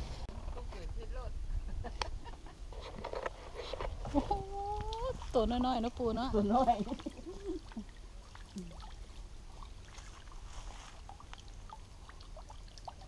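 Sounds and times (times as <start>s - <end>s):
small splashes: 4.4s - 13.0s
water dripping and trickling: 4.5s - 13.0s.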